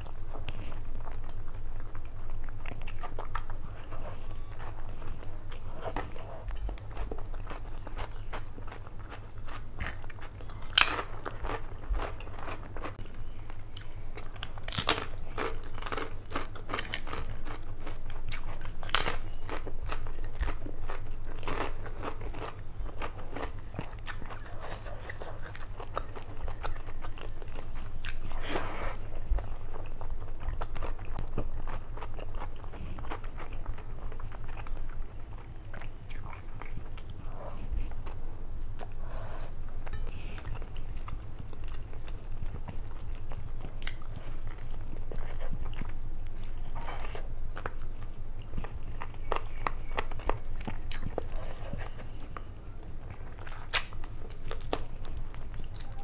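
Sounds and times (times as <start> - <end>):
wet chewing and mouth clicks: 39.8 - 56.0.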